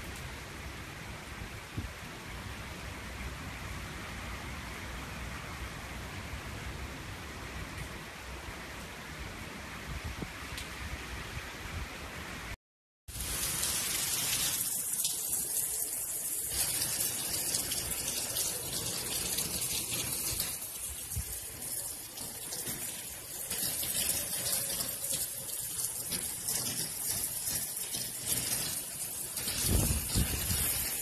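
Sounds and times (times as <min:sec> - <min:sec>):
hurricane wind: 0:09.3 - 0:12.5, 0:16.8 - 0:23.4, 0:29.4 - 0:31.0
heavy rain: 0:13.1 - 0:31.0.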